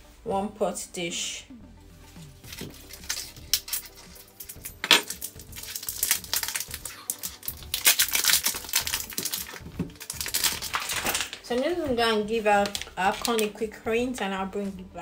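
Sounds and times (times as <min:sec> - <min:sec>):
plastic wrapping crinkling: 0:02.4 - 0:13.6.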